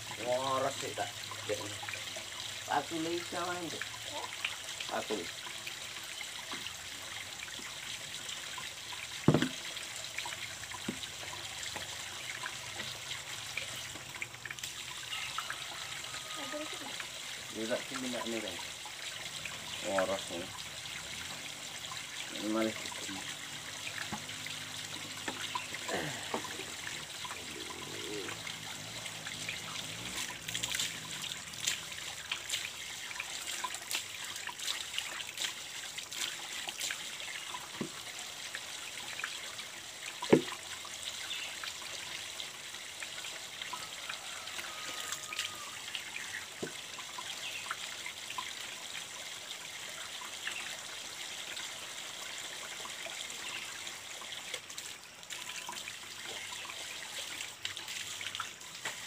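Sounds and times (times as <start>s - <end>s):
water trickling from pipe: 0.0s - 59.0s
splashes in buckets: 17.4s - 38.2s, 54.4s - 59.0s.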